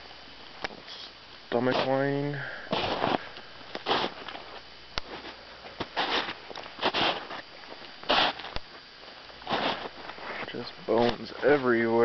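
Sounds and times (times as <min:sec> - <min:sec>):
footsteps crunching in snow: 0:01.6 - 0:02.1, 0:02.7 - 0:08.6, 0:09.4 - 0:11.9.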